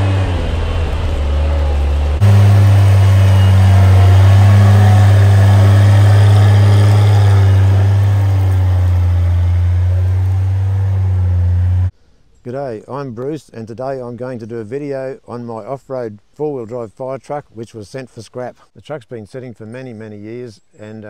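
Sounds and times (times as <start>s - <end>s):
truck engine running: 0.0s - 11.9s.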